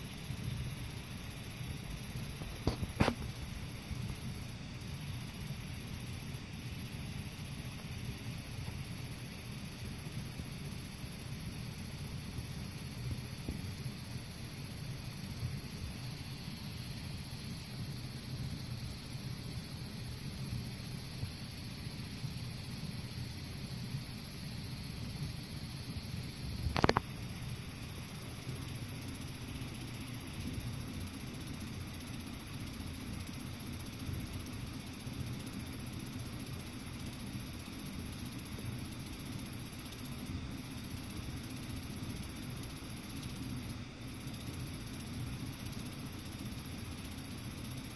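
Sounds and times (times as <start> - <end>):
air-conditioner unit rumbling: 0.0 - 47.9.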